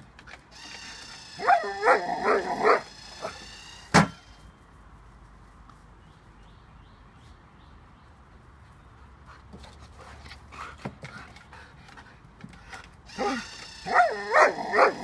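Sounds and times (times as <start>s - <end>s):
dog barking: 1.4s - 2.9s, 13.2s - 15.0s.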